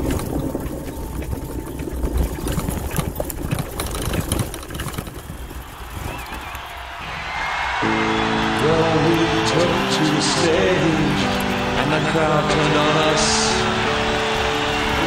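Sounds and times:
tricycle ride rumble: 0:00.0 - 0:15.0
frame rattling and knocking: 0:02.2 - 0:05.8.

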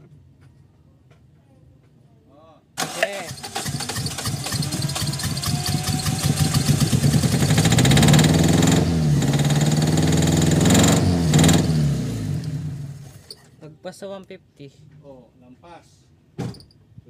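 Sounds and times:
engine cranking on starter: 0:02.8 - 0:13.4.

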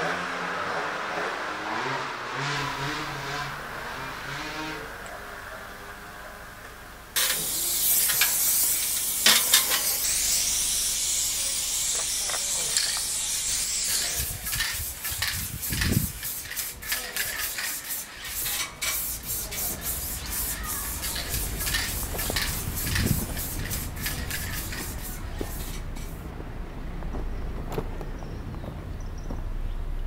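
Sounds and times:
spray paint can hissing: 0:07.2 - 0:26.2.

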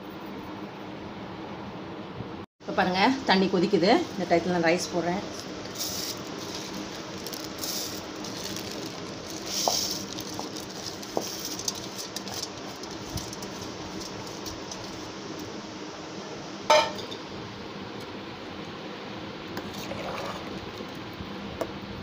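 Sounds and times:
steel bowl clinking: 0:16.7 - 0:17.2
boiling liquid bubbling: 0:19.4 - 0:22.0.

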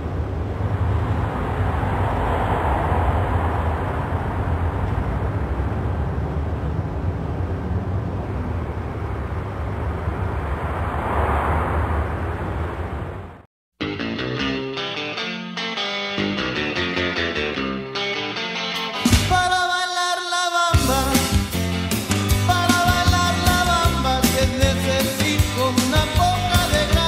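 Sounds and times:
traffic rumble: 0:00.0 - 0:13.5
vehicles passing: 0:00.0 - 0:13.5.

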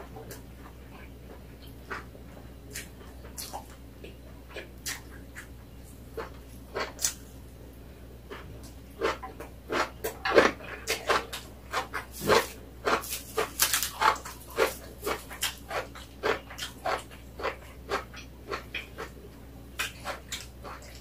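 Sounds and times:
chewing and lip smacking: 0:02.7 - 0:05.6, 0:08.3 - 0:21.0.

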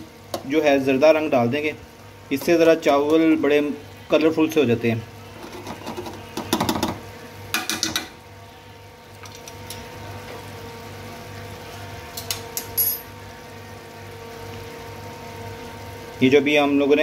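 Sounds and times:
utensil scraping a cooking pot: 0:05.3 - 0:06.3.

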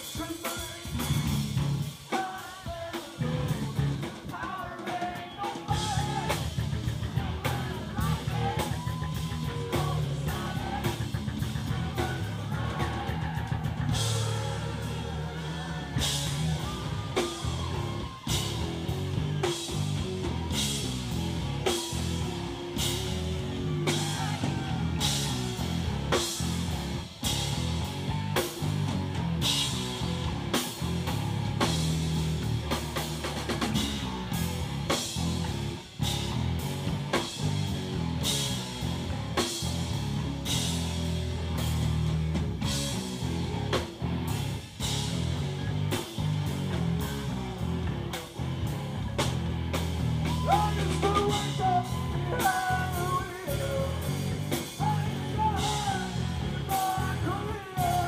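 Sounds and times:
man singing: 0:00.0 - 0:19.7, 0:50.2 - 0:58.0
rock band playing: 0:00.0 - 0:58.0.

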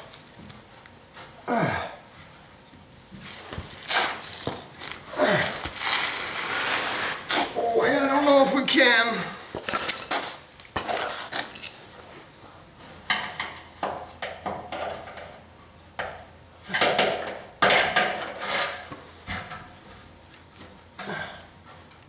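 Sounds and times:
metal tools clinking and rattling: 0:09.6 - 0:10.2, 0:10.8 - 0:11.8.

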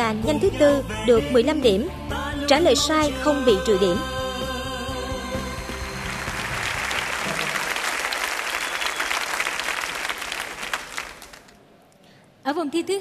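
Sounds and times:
audience applauding: 0:05.6 - 0:11.6.

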